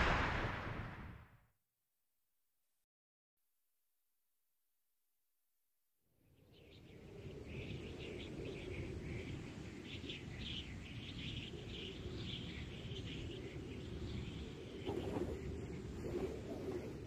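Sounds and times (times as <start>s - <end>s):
small birds chirping: 6.3s - 16.1s.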